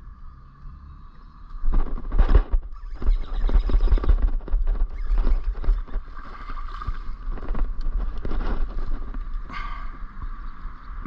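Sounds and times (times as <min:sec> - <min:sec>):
wind rumbling on microphone: 0:00.0 - 0:11.0
gear knocking and rattling: 0:01.5 - 0:09.6.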